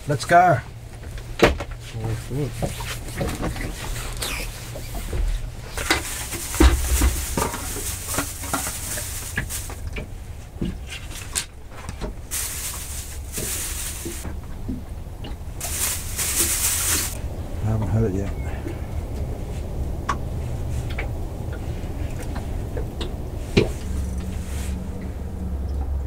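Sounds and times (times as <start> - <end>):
low steady rumble: 0.0 - 26.0
fishing tackle clicks and rustling: 2.5 - 14.4, 15.3 - 17.2.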